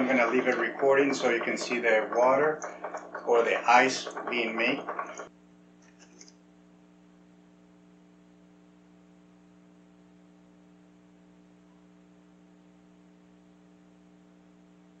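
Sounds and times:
ice maker humming: 0:00.0 - 0:05.3.

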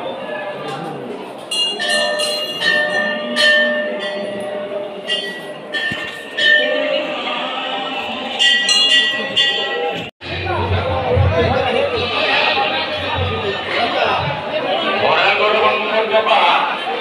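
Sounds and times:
murmur of people: 0:00.0 - 0:17.0
metal bells ringing: 0:01.5 - 0:07.4, 0:08.1 - 0:10.1.

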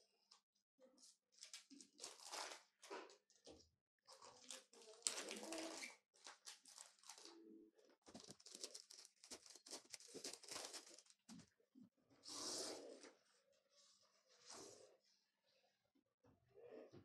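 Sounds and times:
plastic wrapping crinkling: 0:01.4 - 0:02.6, 0:04.3 - 0:07.3, 0:08.0 - 0:11.2.

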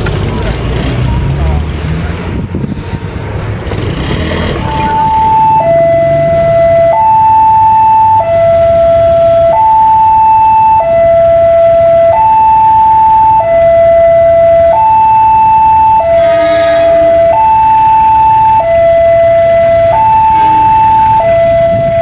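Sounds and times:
two-tone siren: 0:04.5 - 0:22.0.

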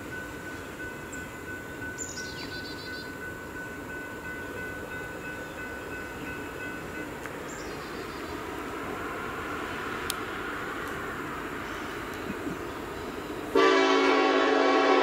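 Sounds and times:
freight train rumble: 0:00.0 - 0:15.0
road traffic passing: 0:00.0 - 0:15.0
bird chirping: 0:00.4 - 0:08.6.

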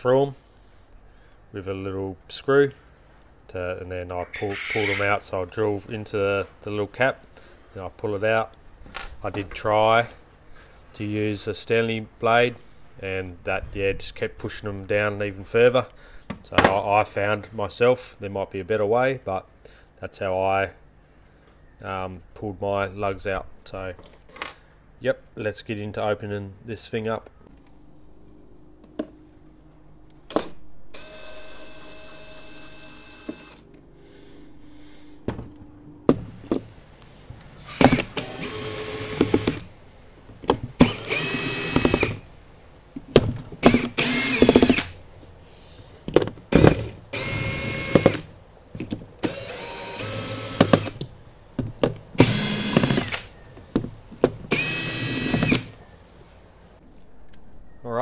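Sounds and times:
cordless drill whining: 0:31.0 - 0:33.6, 0:37.6 - 0:39.7, 0:40.8 - 0:42.2, 0:43.6 - 0:45.0, 0:47.1 - 0:48.2, 0:49.2 - 0:51.0, 0:52.2 - 0:53.3, 0:54.5 - 0:55.7.

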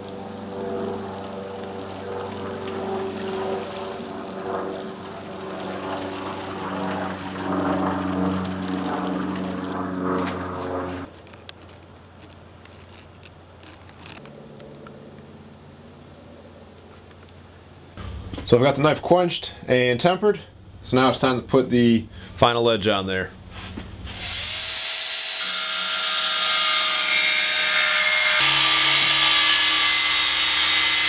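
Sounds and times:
hot blade sizzling in oil: 0:00.0 - 0:06.6
steady humming tone: 0:00.0 - 0:11.1.

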